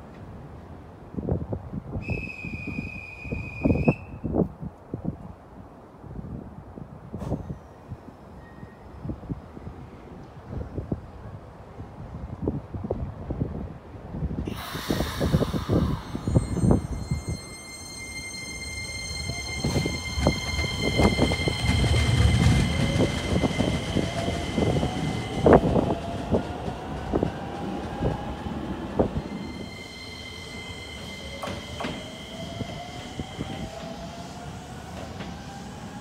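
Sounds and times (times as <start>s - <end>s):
train traction motor whine: 14.5s - 36.0s.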